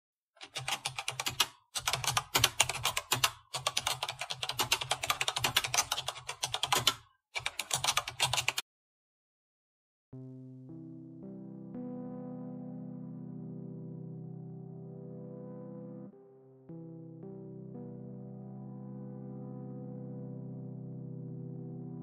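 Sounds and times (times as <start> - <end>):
background music chord: 10.2 - 22.0.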